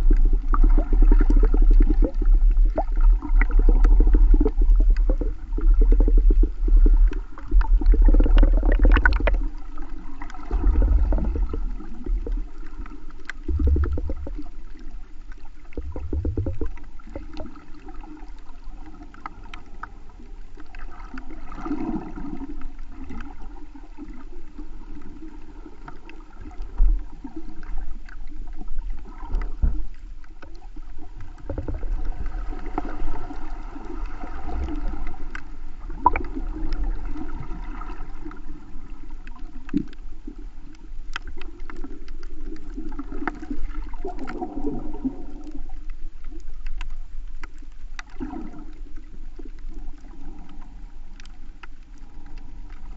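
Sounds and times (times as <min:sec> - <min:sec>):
faint crackling clicks: 0:00.0 - 0:52.9
muffled underwater movement: 0:00.0 - 0:52.9.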